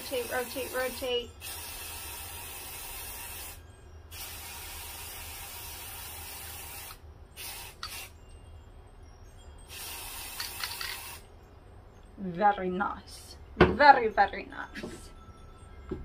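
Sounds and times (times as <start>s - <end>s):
spray can hissing: 0.0s - 8.1s, 9.7s - 11.2s.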